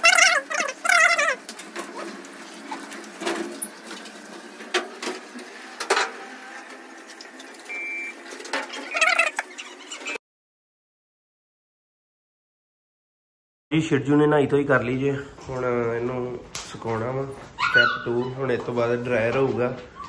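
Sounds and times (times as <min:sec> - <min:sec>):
puppy whimpering: 0:00.0 - 0:01.4, 0:08.9 - 0:10.2, 0:17.5 - 0:18.7.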